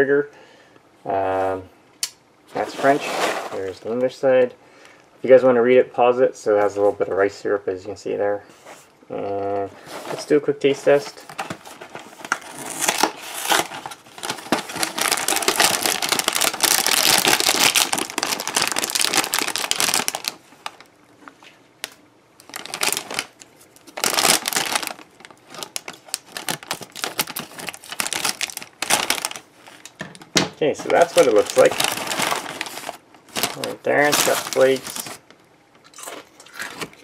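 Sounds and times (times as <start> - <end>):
plastic bag crinkling: 9.9 - 20.9, 22.4 - 37.0.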